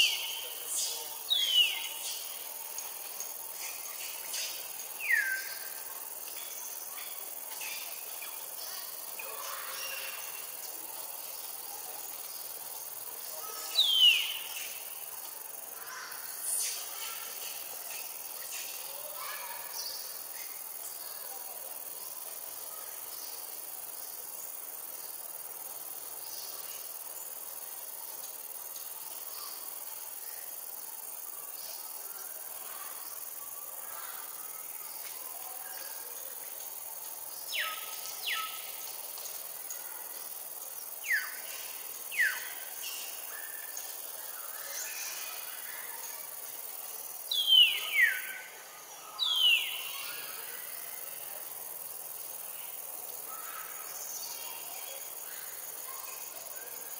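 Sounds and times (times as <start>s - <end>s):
high-pitched insect drone: 0.0s - 20.9s.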